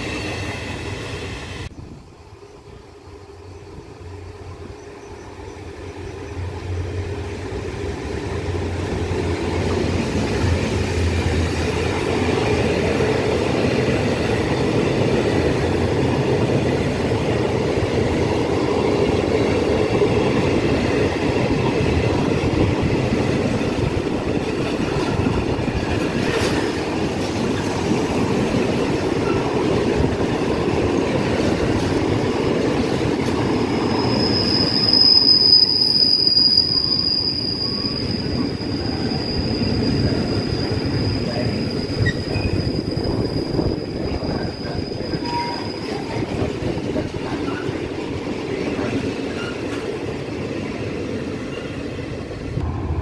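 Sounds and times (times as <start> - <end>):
train wheels rumbling on rail: 0.0 - 53.0
high steady squeal: 33.7 - 46.5.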